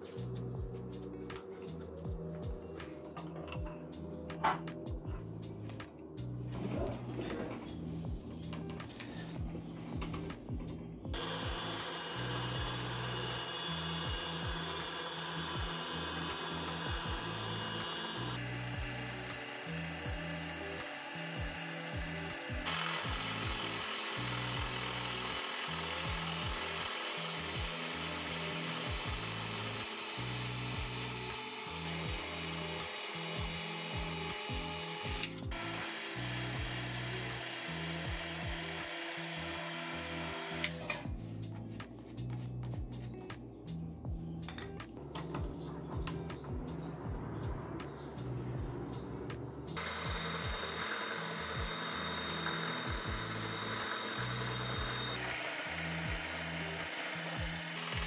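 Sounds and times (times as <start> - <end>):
background music: 0.0 - 58.0
milling machine cutting metal: 11.2 - 41.0, 49.8 - 58.0.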